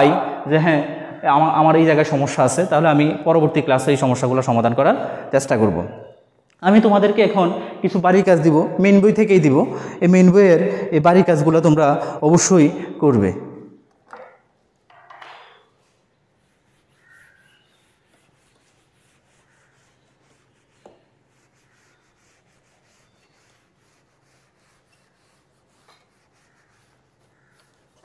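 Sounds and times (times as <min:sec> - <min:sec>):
duster rubbing a whiteboard: 0:15.8 - 0:28.0.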